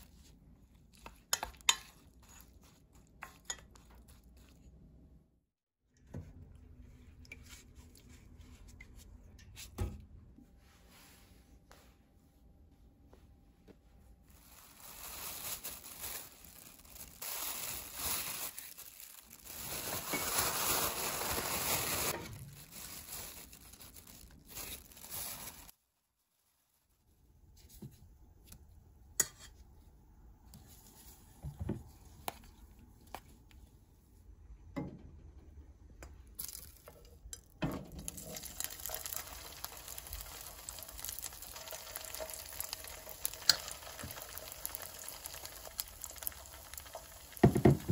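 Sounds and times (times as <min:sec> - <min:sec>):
plastic bag crinkling: 0:14.3 - 0:25.8, 0:38.1 - 0:47.9
oysters sizzling in a pan: 0:38.0 - 0:47.9.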